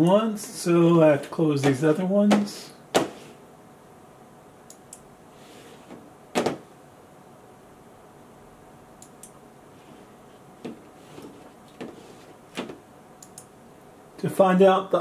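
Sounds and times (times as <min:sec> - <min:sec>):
computer mouse clicking: 0:13.2 - 0:13.5.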